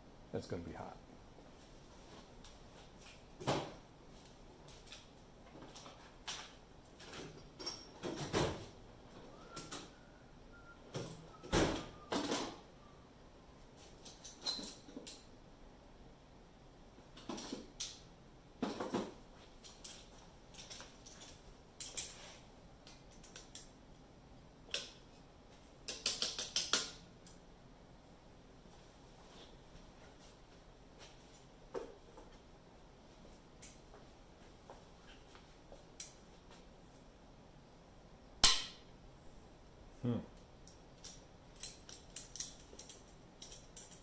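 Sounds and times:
hand tools clinking on metal: 41.0s - 44.0s.

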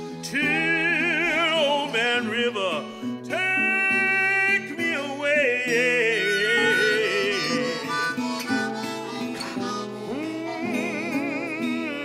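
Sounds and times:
guitar accompaniment: 0.0s - 12.0s
harmonica playing: 5.4s - 12.0s.

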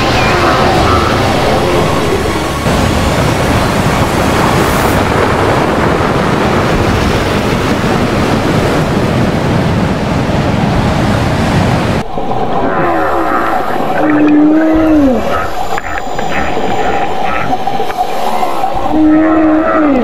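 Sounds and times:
whale calls: 0.0s - 2.6s, 12.1s - 20.0s
ocean surf: 0.0s - 20.0s
wind: 0.0s - 20.0s.

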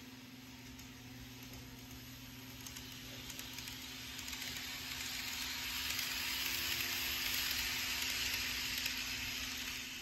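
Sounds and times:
model train running on track: 0.5s - 10.0s.

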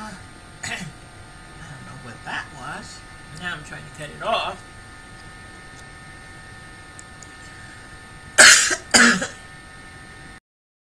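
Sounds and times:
woman coughing: 8.4s - 9.4s.

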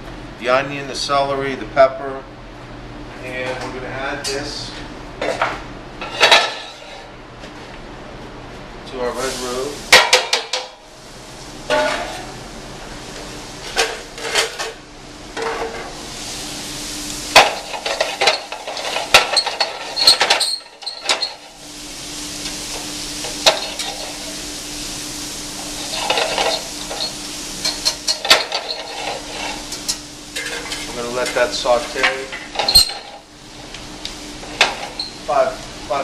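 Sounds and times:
vegetables sizzling in hot roux: 15.9s - 36.0s
wire whisk clanking against pan: 17.4s - 21.4s.

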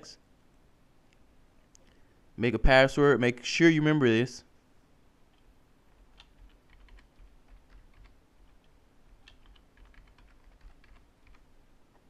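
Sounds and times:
computer keyboard typing: 5.3s - 11.5s.

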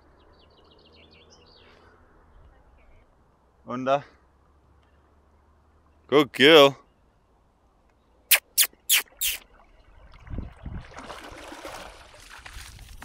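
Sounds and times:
short sharp sounds: 8.3s - 9.4s
dog splashing through water: 10.8s - 13.0s.

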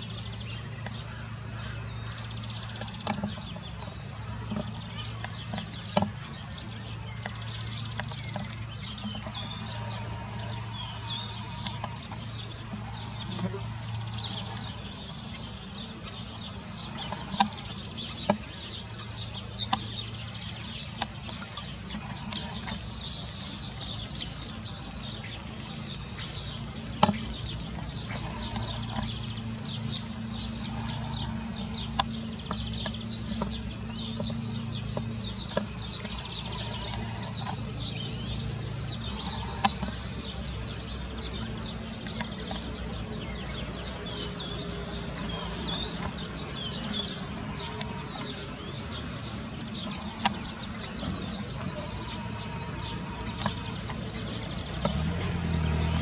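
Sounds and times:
songbirds chirping: 0.0s - 56.0s
steady low hum: 0.0s - 56.0s
sharp clicks: 41.6s - 56.0s.

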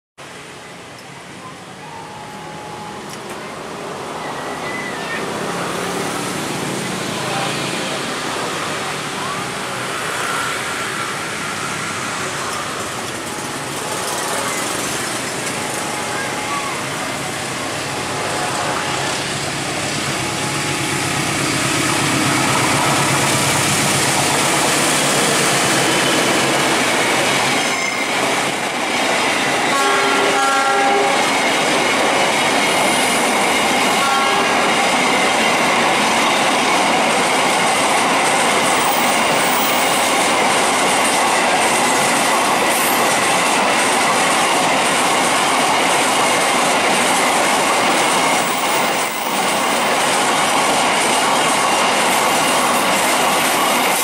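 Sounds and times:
diesel locomotive: 0.2s - 54.0s
high wheel squeal: 4.0s - 5.7s, 27.4s - 28.5s
locomotive horn: 29.7s - 31.3s, 34.0s - 34.8s.

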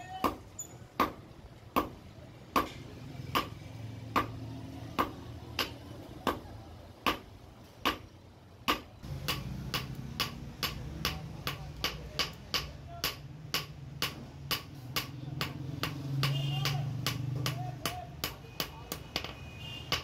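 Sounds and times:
hammer striking hot metal on anvil: 8.7s - 20.0s.

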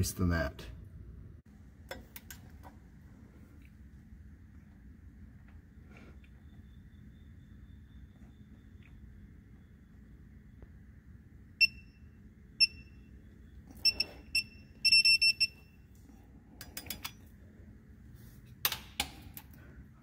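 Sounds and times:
short high beeps: 13.8s - 15.6s.

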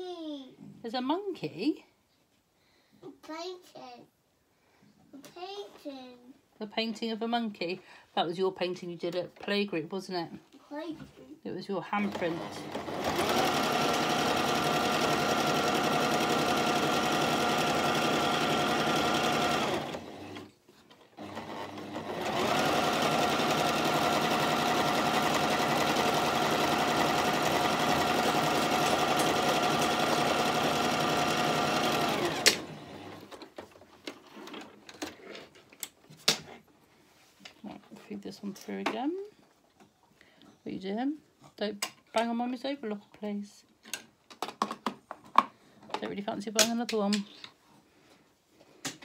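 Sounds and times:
sewing machine stitching: 12.0s - 33.4s.

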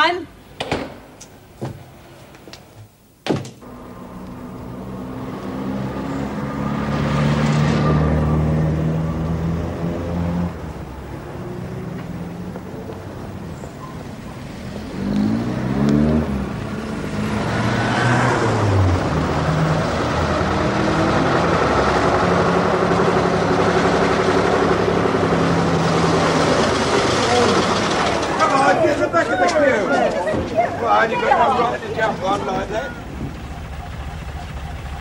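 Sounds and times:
car engine rising in pitch: 3.6s - 28.7s
bus engine and road noise: 3.6s - 35.0s.

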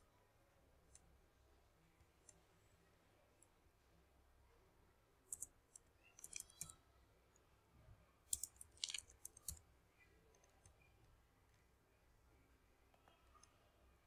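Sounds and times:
keyboard typing: 6.1s - 6.8s, 8.3s - 9.6s.

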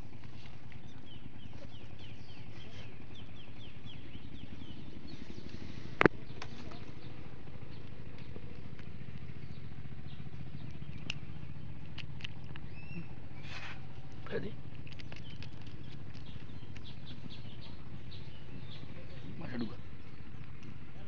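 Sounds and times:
steady low hum: 0.0s - 21.0s
bird-like chirps: 0.8s - 8.4s, 12.5s - 13.7s, 14.9s - 20.6s.

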